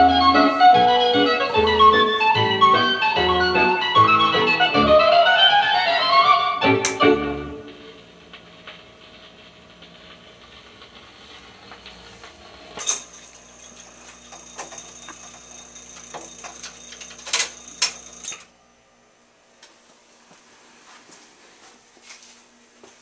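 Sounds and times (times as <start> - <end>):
motor running with clicks and rattles: 8.2 - 18.5.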